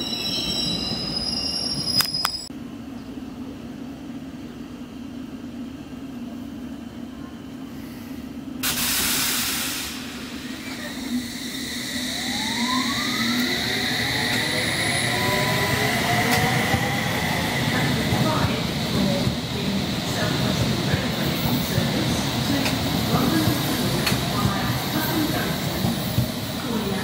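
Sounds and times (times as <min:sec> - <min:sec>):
air hiss burst: 0:08.6 - 0:10.6
train equipment humming: 0:09.8 - 0:27.0
train motors whining: 0:10.4 - 0:27.0.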